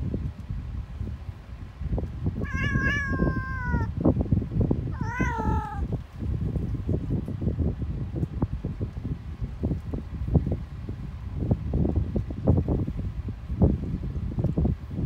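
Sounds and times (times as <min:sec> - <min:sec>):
steady low rumble: 0:00.0 - 0:15.0
cat meowing: 0:02.4 - 0:03.9, 0:04.9 - 0:05.9.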